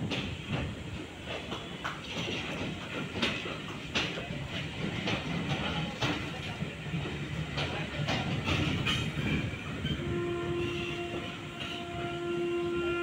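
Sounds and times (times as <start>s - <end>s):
train rumble: 0.0s - 13.0s
train wheels clacking on rails: 0.0s - 13.0s
locomotive pitched tone: 8.1s - 13.0s.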